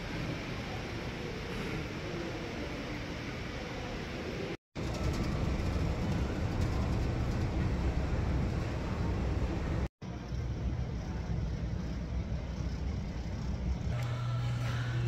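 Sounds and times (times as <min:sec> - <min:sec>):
traffic noise: 0:00.0 - 0:15.0
vehicle rumbling: 0:04.8 - 0:15.0.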